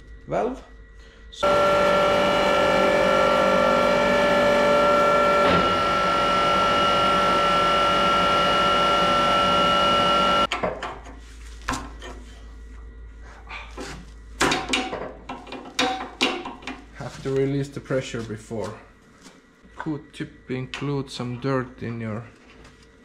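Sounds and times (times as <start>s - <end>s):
hydraulic pump whining: 1.4s - 10.5s.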